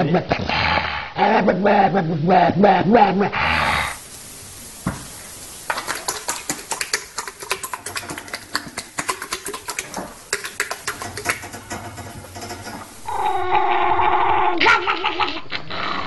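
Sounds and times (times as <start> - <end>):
rapid light clicks and taps: 5.7 - 13.0.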